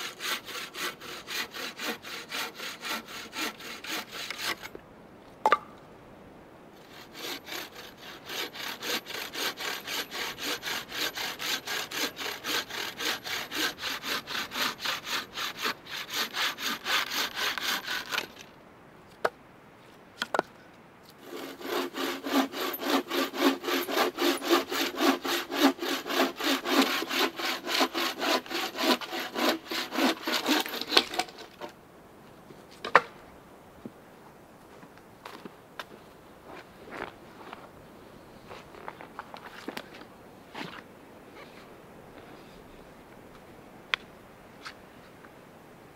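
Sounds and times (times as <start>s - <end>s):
bowsaw cutting wood: 0.0s - 4.8s, 6.8s - 18.5s, 21.2s - 31.8s.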